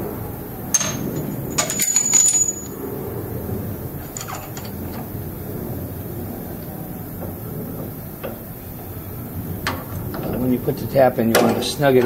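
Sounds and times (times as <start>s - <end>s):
low steady background noise: 0.0s - 12.0s
steel tools clinking: 0.7s - 2.9s, 4.0s - 4.9s.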